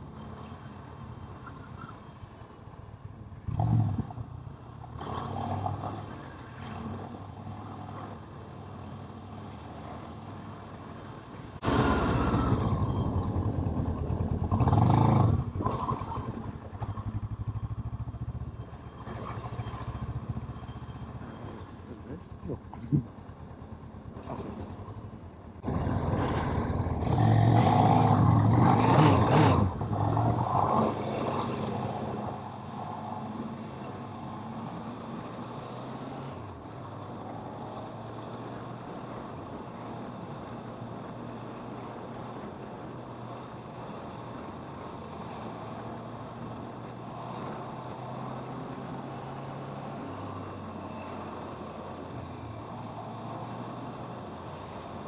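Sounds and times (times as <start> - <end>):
rushing road and air noise: 0.0 - 55.0
motorcycle engine running: 11.6 - 15.6.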